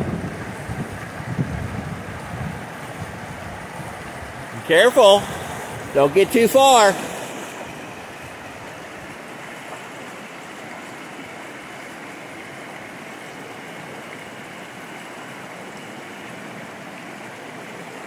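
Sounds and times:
river flowing over stones: 0.0s - 18.0s.

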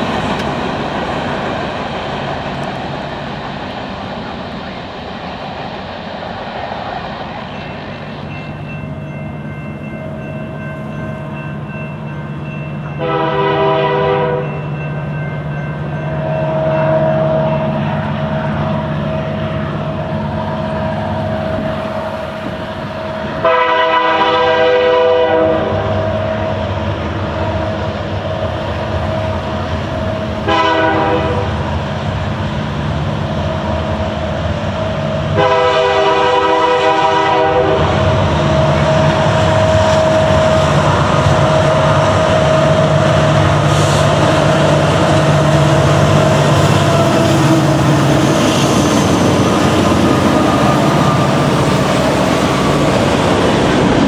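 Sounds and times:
diesel locomotive drone: 0.0s - 54.0s
train air horn blowing: 13.0s - 14.6s, 23.4s - 26.6s, 30.4s - 31.6s, 35.3s - 38.1s.

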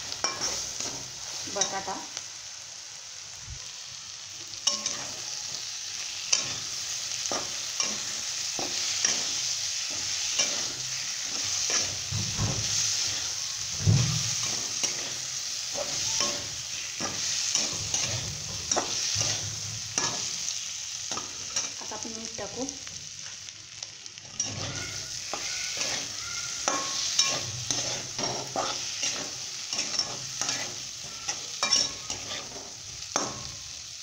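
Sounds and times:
potatoes sizzling in oil: 0.0s - 34.0s
spatula scraping and tapping pan: 24.4s - 33.5s.

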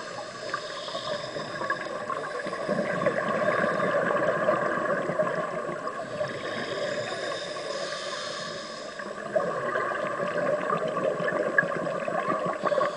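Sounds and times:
hissing regulator inhale: 0.0s - 4.2s, 6.0s - 9.4s, 12.4s - 12.9s
exhaust bubbles gurgling: 1.3s - 7.2s, 9.1s - 12.9s.

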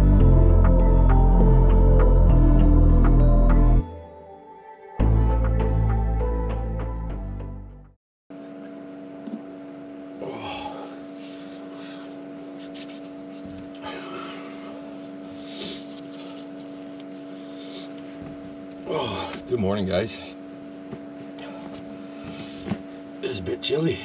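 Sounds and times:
background music: 0.0s - 8.0s
electric fan humming: 8.4s - 24.0s.

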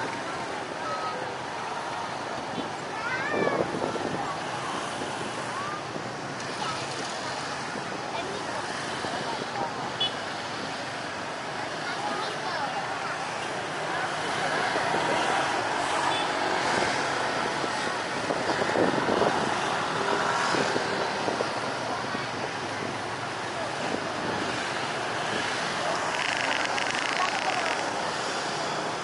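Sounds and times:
crowd talking: 0.0s - 29.0s.

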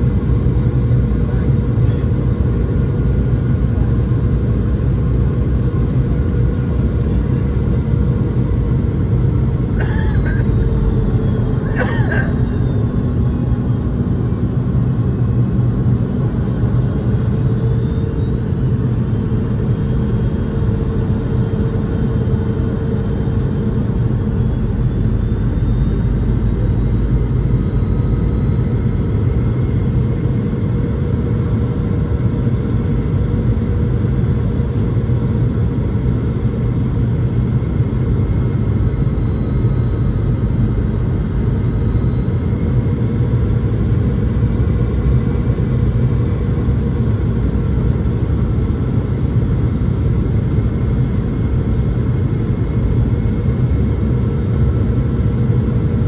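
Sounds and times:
jet engine cabin drone: 0.0s - 56.0s.

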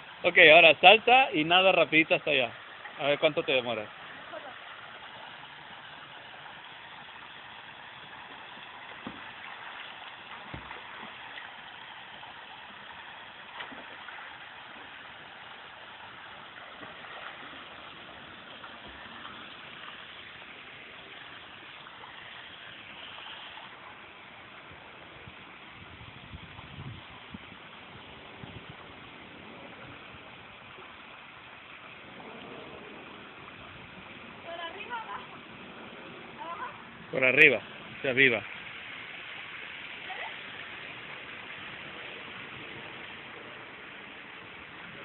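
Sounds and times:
water rushing in a pool: 0.0s - 45.0s.

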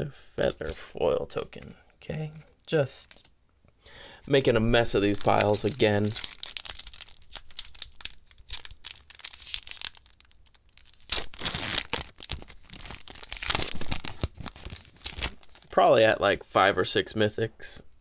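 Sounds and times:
foil wrapper crinkling and tearing: 4.9s - 15.7s.

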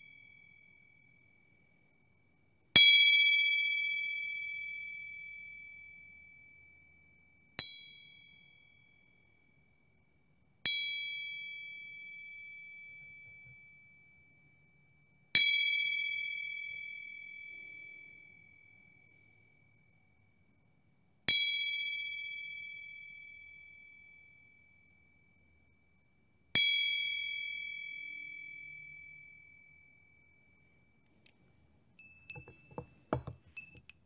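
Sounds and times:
small bell ringing: 32.0s - 34.0s.

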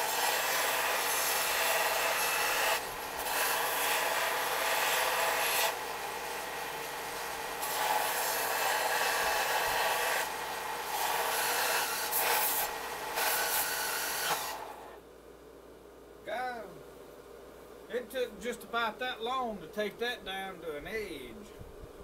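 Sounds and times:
belt grinder grinding steel: 0.0s - 14.8s.

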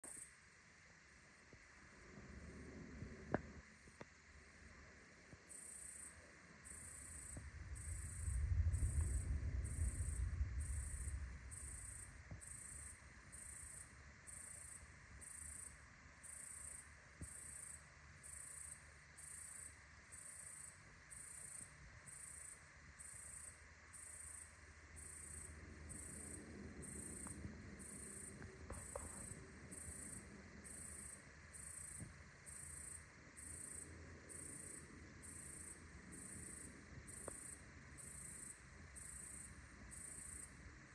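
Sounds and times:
cricket chirping: 0.0s - 40.9s
thunder rumbling: 7.4s - 12.8s.

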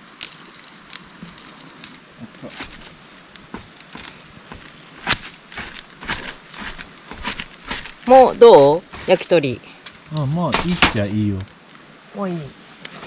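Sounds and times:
faint steady hiss: 0.0s - 13.0s
knife chopping on cutting board: 3.6s - 9.3s, 10.5s - 11.1s.

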